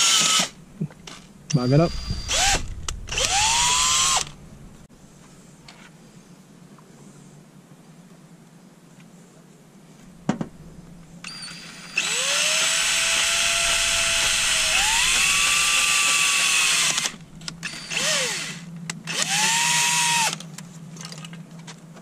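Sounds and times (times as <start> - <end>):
cordless drill motor whine: 0.0 - 0.6, 1.6 - 4.4, 11.2 - 20.4.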